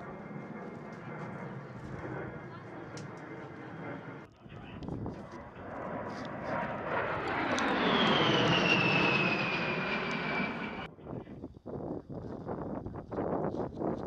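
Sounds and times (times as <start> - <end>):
jet engines whining overhead: 0.0 - 10.9.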